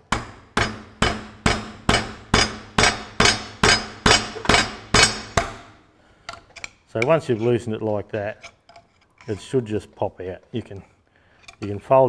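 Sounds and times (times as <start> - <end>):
hammer striking metal punch: 0.0 - 5.8.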